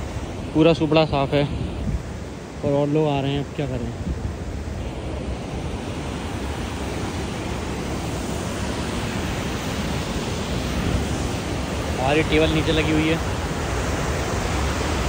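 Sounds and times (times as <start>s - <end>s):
wind buffeting microphone: 0.0s - 2.7s, 3.8s - 12.4s.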